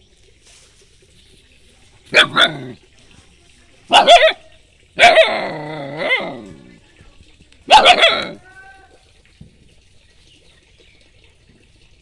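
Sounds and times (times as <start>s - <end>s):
young dog barking: 2.1s - 2.8s, 3.9s - 6.8s, 7.7s - 8.8s.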